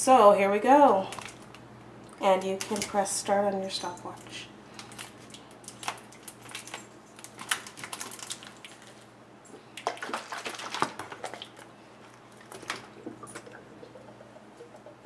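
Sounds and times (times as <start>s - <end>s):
plastic bottles crackling: 4.7s - 9.1s, 9.8s - 14.2s.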